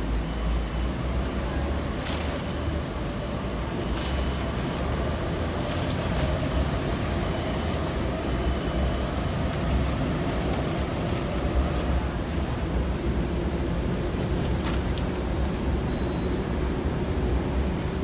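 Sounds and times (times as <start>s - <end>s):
diesel engine rumble: 0.0s - 18.0s.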